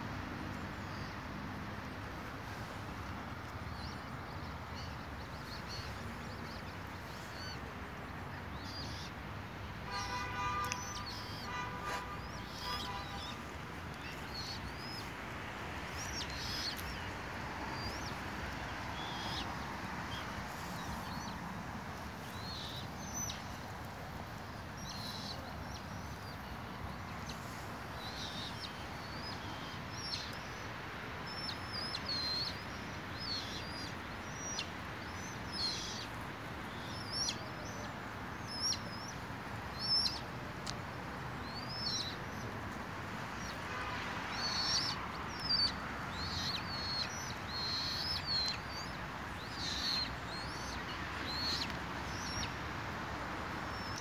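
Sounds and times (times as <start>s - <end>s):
steady background hiss: 0.0s - 54.0s
birds chirping: 8.4s - 21.4s, 22.0s - 40.2s, 43.4s - 52.6s.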